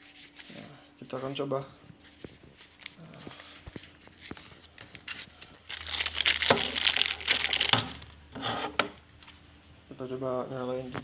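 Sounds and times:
plastic bag crinkling: 2.6 - 8.2.

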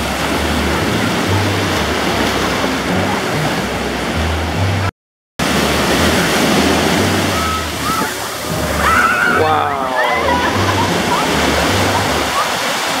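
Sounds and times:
waves breaking on beach: 0.0 - 13.0.

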